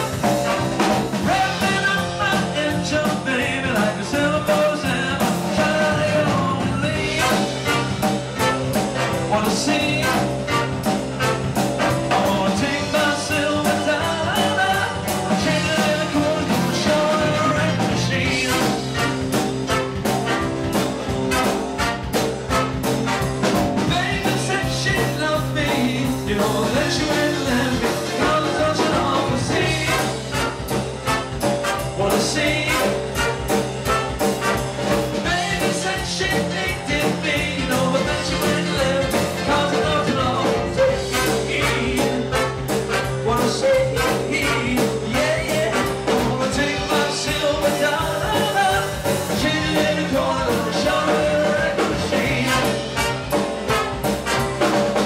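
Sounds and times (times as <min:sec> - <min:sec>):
trumpets: 0:00.0 - 0:02.3, 0:07.0 - 0:12.7, 0:15.5 - 0:24.6, 0:26.8 - 0:36.6, 0:37.8 - 0:46.5, 0:47.4 - 0:55.0
drum kit: 0:00.0 - 0:55.0
keyboard: 0:00.0 - 0:55.0
lead singer singing: 0:01.2 - 0:08.1, 0:09.0 - 0:10.7, 0:12.1 - 0:19.3, 0:23.8 - 0:30.6, 0:31.7 - 0:34.0, 0:35.2 - 0:53.1
saxophone: 0:07.0 - 0:12.6, 0:17.1 - 0:23.9.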